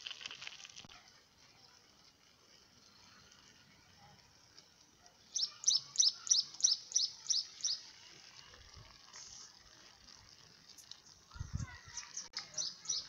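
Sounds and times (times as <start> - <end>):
bird chirping: 5.3 - 7.9, 11.9 - 13.0.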